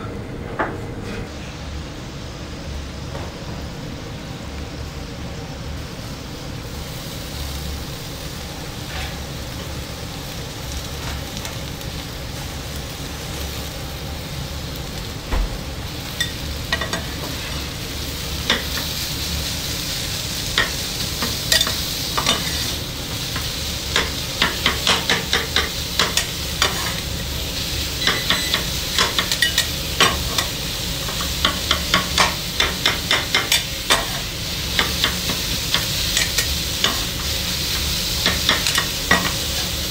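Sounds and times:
food sizzling on griddle: 3.4s - 39.9s
metal spatula clacking on griddle: 23.4s - 27.0s, 28.0s - 30.5s, 31.1s - 34.2s, 38.2s - 39.4s.

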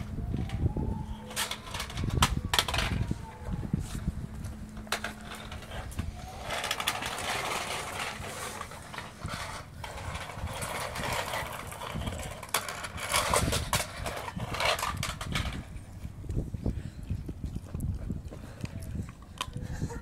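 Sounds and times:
dog crunching bone: 16.3s - 19.6s.

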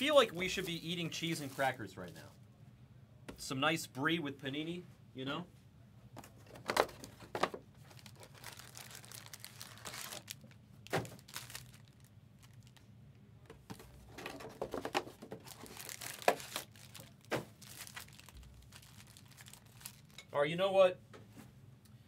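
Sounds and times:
plastic packaging crinkling: 6.6s - 12.9s, 13.7s - 20.2s.

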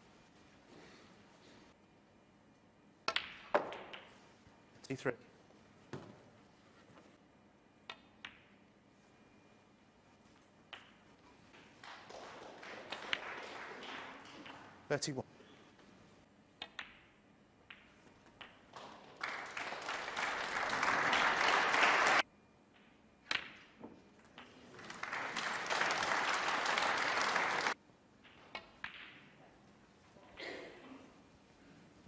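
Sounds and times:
snooker balls clicking: 3.0s - 4.2s, 10.7s - 14.8s, 16.6s - 19.2s, 28.2s - 29.4s
audience applause: 12.0s - 14.7s, 18.8s - 22.2s, 24.7s - 27.8s.

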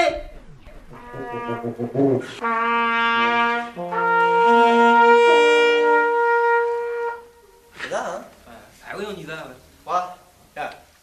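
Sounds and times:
brass instruments playing chords: 0.2s - 7.7s.

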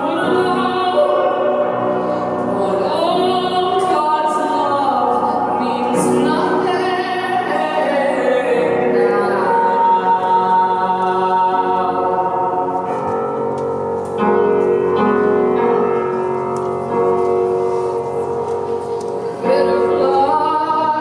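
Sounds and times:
piano accompaniment: 0.0s - 21.0s
woman singing long notes: 2.5s - 12.8s, 19.4s - 21.0s.

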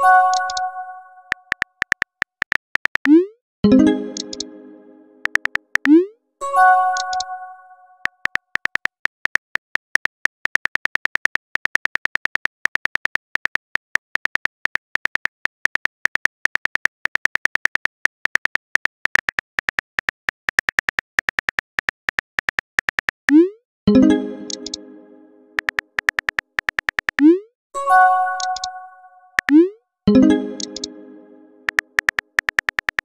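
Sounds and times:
phone keyboard typing clicks: 0.1s - 3.2s, 4.1s - 4.5s, 5.2s - 6.0s, 6.9s - 7.4s, 8.0s - 23.4s, 24.4s - 24.9s, 25.6s - 27.3s, 28.4s - 28.8s, 29.4s - 31.0s, 31.6s - 33.0s.

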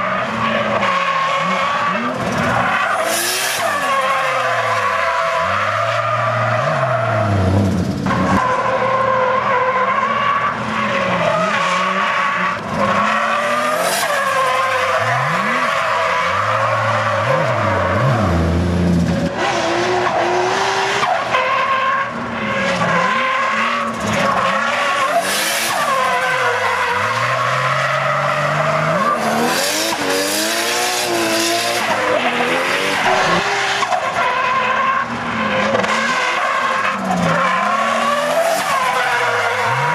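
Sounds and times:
car engine revving: 0.0s - 21.3s, 22.0s - 39.9s.

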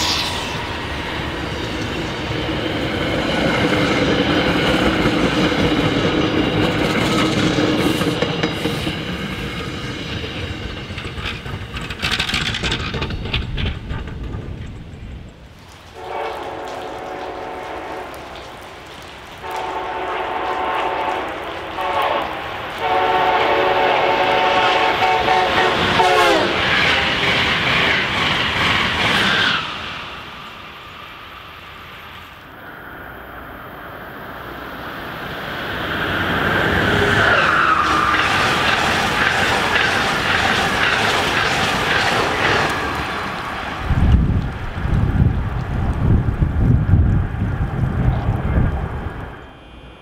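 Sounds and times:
rush of train passing: 0.0s - 50.0s
train horn blasts: 15.9s - 18.4s, 19.4s - 26.6s.

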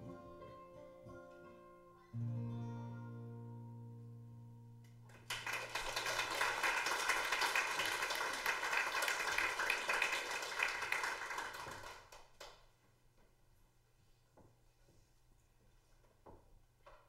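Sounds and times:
guitar chord ringing: 0.0s - 5.2s
audience applause: 5.1s - 12.3s.

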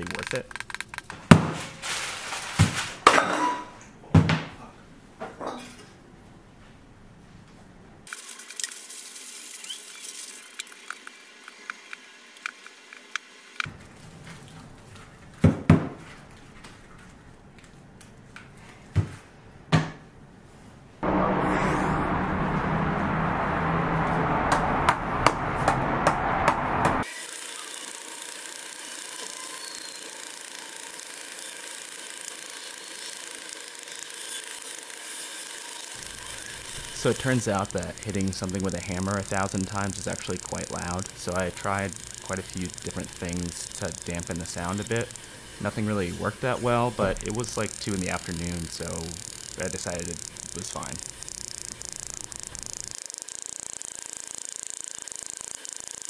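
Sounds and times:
aluminum foil crinkling: 1.6s - 3.0s
electric blower running: 21.0s - 56.0s.

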